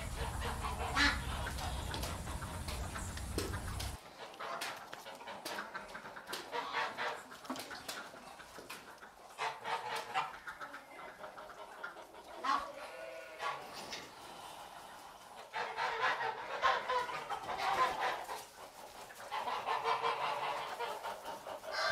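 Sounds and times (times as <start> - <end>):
low wind rumble: 0.0 - 4.0
goose cackling calls: 0.0 - 7.3, 15.4 - 18.4, 19.2 - 21.9.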